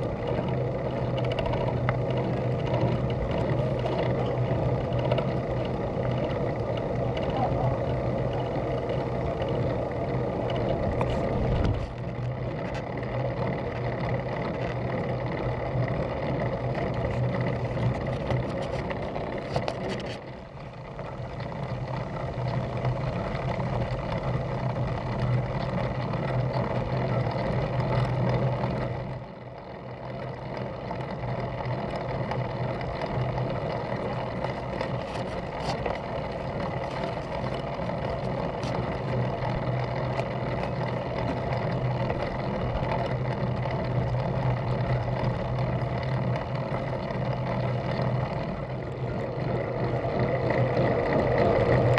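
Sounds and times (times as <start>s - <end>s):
tyres humming on tarmac: 0.0s - 51.9s
wind rushing over microphone: 10.7s - 12.1s.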